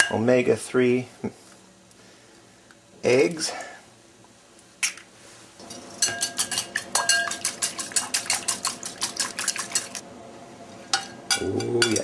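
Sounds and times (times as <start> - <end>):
fork beating eggs in bowl: 5.6 - 10.0.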